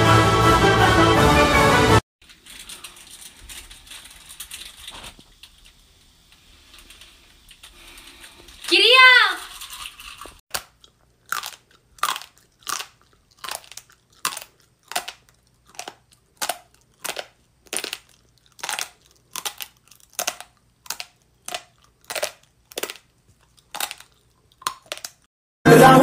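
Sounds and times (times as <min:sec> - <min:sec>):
crisp crunches: 0:09.4 - 0:25.2.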